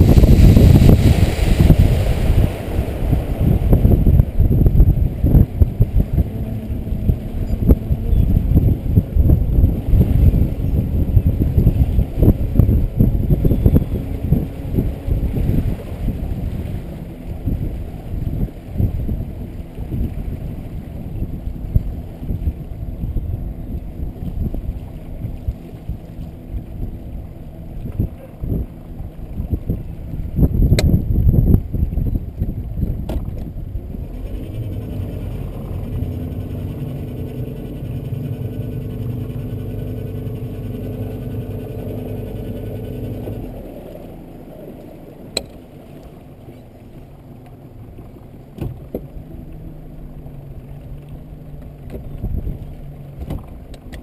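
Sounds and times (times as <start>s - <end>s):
outboard motor humming: 0.0s - 54.0s
wind buffeting microphone: 0.0s - 54.0s.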